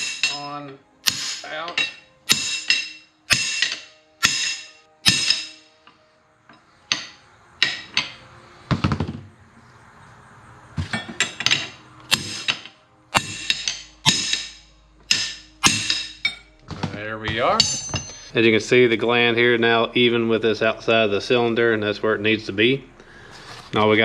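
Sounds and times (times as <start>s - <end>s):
hammer tapping steel wrench: 0.0s - 8.2s.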